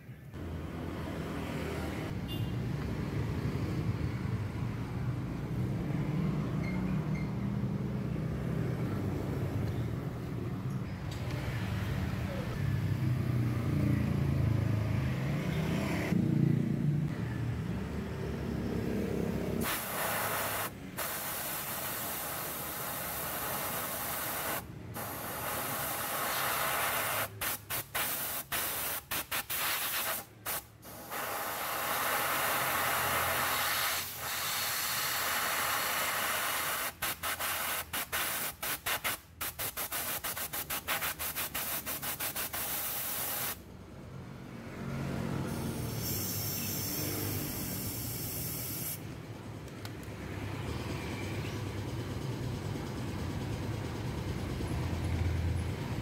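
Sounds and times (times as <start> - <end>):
air blow gun hissing: 19.6 - 43.6, 45.5 - 49.0.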